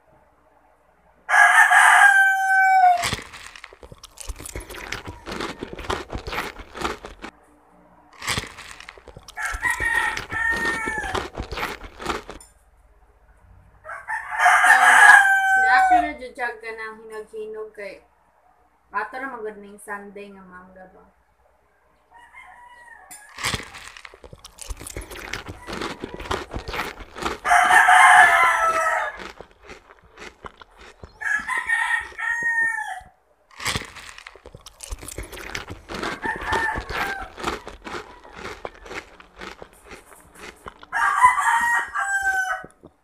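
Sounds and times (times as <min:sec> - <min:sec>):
rooster crowing: 0:01.3 - 0:03.5, 0:09.2 - 0:11.7, 0:13.8 - 0:16.2, 0:22.1 - 0:23.9, 0:24.6 - 0:30.3, 0:31.0 - 0:33.1, 0:34.8 - 0:42.9
crunching and chewing mango: 0:01.3 - 0:07.4, 0:08.2 - 0:12.6, 0:23.2 - 0:43.0.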